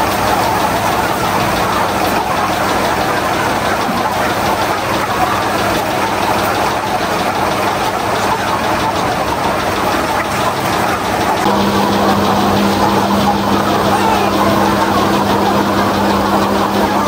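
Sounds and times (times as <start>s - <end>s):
motor running steadily: 0.0s - 17.0s
low hum: 11.4s - 17.0s.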